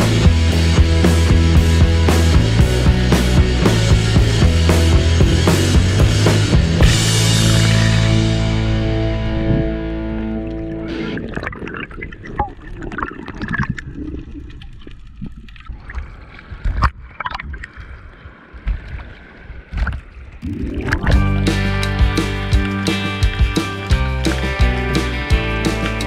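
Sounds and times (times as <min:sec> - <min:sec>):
rock music: 0:00.0 - 0:11.3, 0:20.9 - 0:26.0
water sloshing and gurgling: 0:06.8 - 0:21.5.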